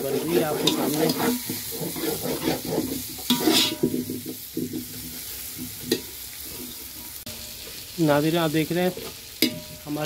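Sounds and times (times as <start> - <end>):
metal spoon scraping a steel pot: 0.0 - 5.2
food sizzling and frying: 0.0 - 10.0.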